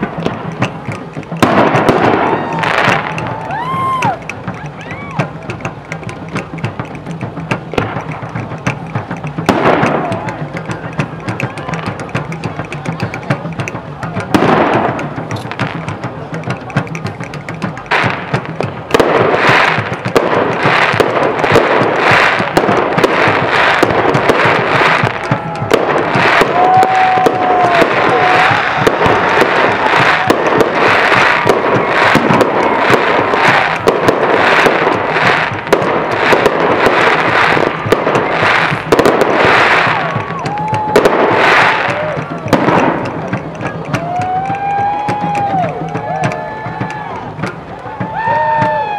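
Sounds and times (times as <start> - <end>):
firework shells bursting: 0.0 - 48.7
firework whistling: 1.4 - 5.3, 18.9 - 45.7.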